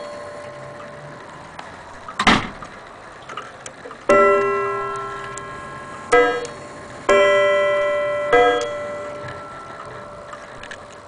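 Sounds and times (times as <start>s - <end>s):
wall clock striking gongs: 0.0s - 2.1s, 4.1s - 11.0s
faint clock ticking: 3.6s - 11.0s.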